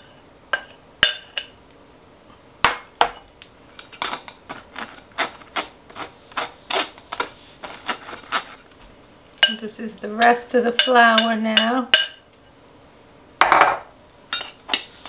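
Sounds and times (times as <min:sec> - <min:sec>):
spoon scraping wire-mesh strainer: 0:03.9 - 0:08.7.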